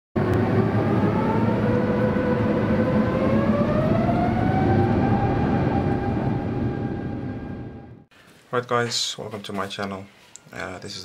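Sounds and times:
jet engine running: 0.2 - 8.1.

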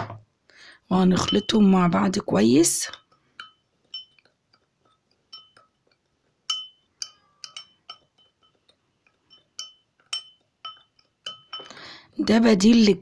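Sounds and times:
metal spoon clinking ceramic bowl: 1.2 - 1.7, 2.9 - 12.8.

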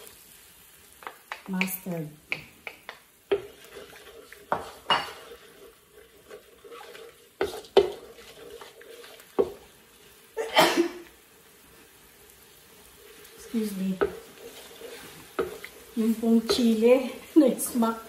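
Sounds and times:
utensil scraping metal pan: 3.3 - 10.0, 12.9 - 17.0.

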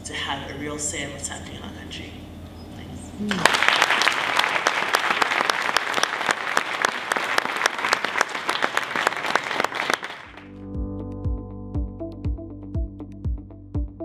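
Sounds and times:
audience applause: 3.3 - 10.5
electronic music with low beat: 10.5 - 14.0.

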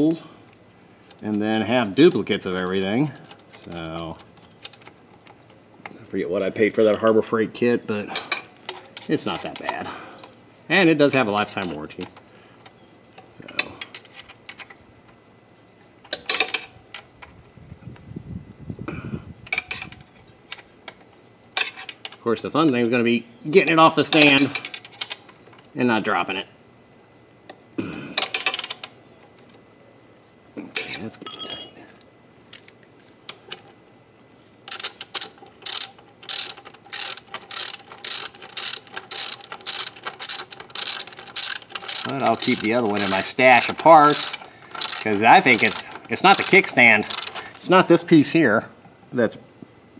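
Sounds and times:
low rubbing and handling noise: 0.0 - 15.3, 32.8 - 49.4
metal tools clinking: 1.1 - 7.4, 8.0 - 10.3, 16.1 - 17.1, 19.5 - 20.0, 21.6 - 22.3, 23.6 - 25.4, 28.2 - 29.0, 30.7 - 32.0, 34.7 - 48.0
socket ratchet clicking: 34.7 - 47.6.

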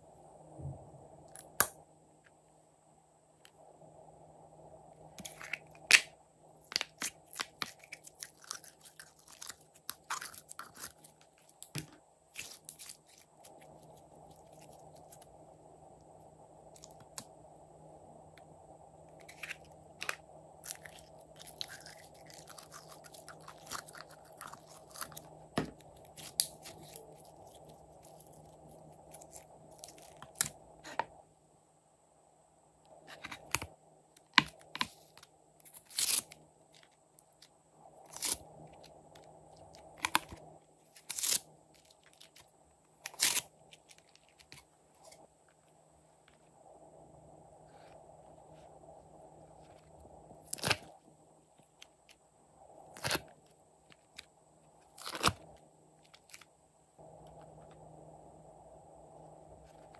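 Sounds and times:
slime squishing with sticky crackles: 5.2 - 15.3, 19.2 - 31.0.

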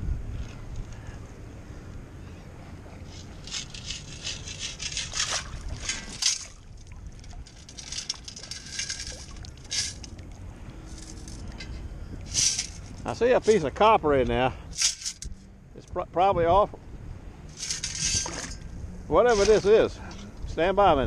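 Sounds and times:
water sloshing: 2.7 - 13.9
gravel and sand rattling in scoop: 3.1 - 10.2, 10.8 - 15.3, 17.5 - 20.3.

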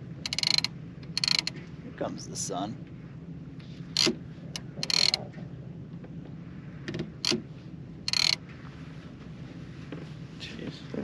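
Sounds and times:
boat motor humming: 0.0 - 11.0
fishing reels clicking and rattling: 0.2 - 1.6, 4.0 - 5.2, 8.1 - 8.4.

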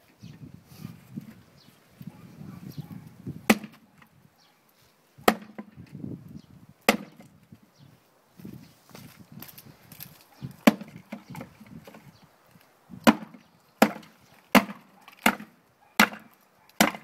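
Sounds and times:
axe chopping a log: 3.5 - 3.8, 5.2 - 5.8, 6.9 - 7.3, 10.6 - 12.0, 13.0 - 17.0.

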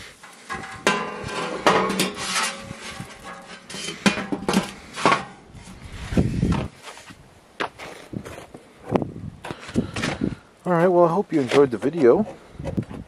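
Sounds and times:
sheet metal clanks and scrapes: 0.1 - 5.8.

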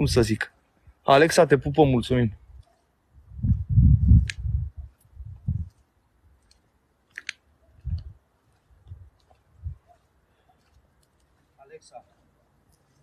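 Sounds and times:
muffled low thumps: 3.2 - 5.7
brief sharp clicks: 6.5 - 8.1.

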